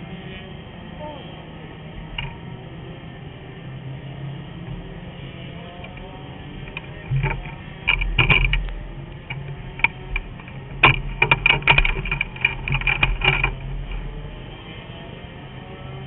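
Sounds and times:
low hum: 0.0 - 16.0
metallic clicks and rattles: 5.8 - 14.3.

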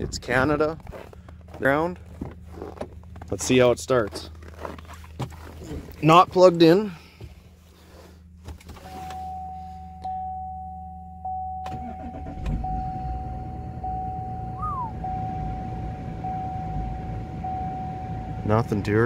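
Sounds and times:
diesel engine starting and running: 0.0 - 19.0
low electrical hum: 0.0 - 19.0
electronic chime in cab: 8.8 - 19.0.

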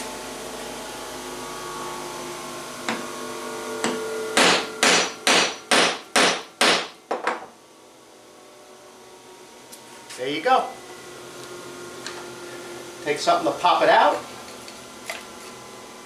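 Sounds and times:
steady machine hum: 0.0 - 16.0
hammer striking metal punch: 3.8 - 7.4.

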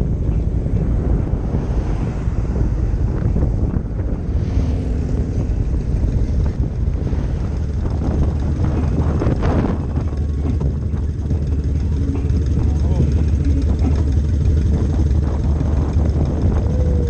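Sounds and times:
motorcycle engines idling: 0.0 - 17.0
wind rumbling on microphone: 0.0 - 17.0.

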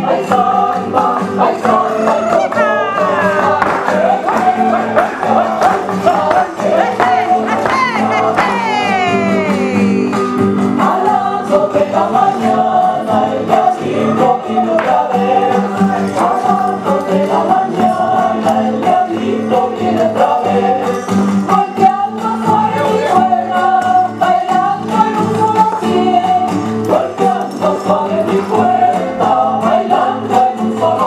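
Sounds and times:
rhythmic instrumental accompaniment: 0.0 - 31.0
voices singing together: 0.0 - 31.0.

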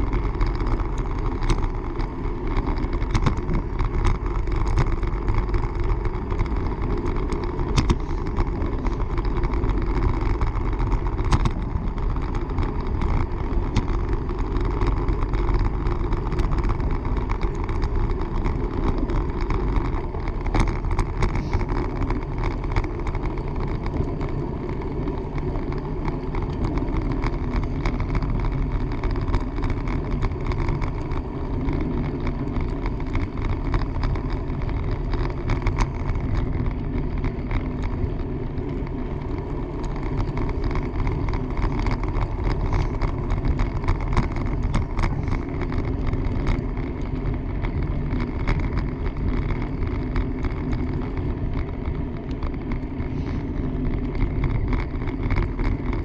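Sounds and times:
bicycle tyres rolling on pavement: 0.0 - 56.0.

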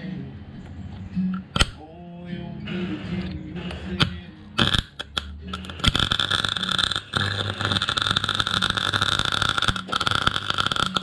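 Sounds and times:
welder arc crackling: 4.0 - 11.0.

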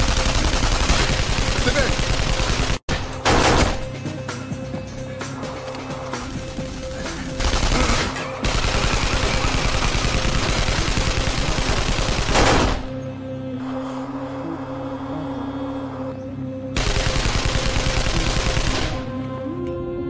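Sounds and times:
machine-gun fire: 0.0 - 3.8, 7.4 - 12.9, 16.8 - 19.1
dramatic background music: 0.0 - 20.0.

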